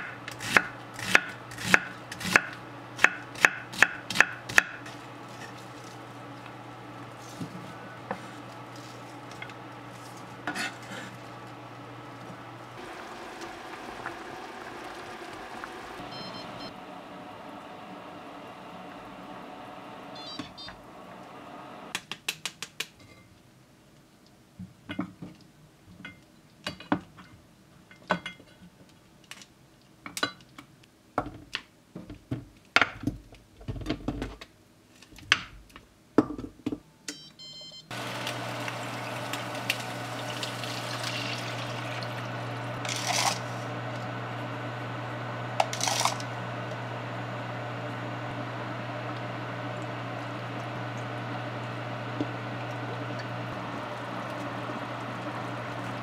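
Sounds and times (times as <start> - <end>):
steady low hum: 4.8 - 21.9.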